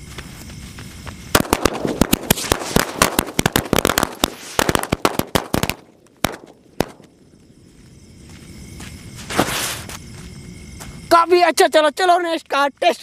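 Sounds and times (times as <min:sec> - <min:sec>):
firecrackers banging: 0:01.3 - 0:07.1.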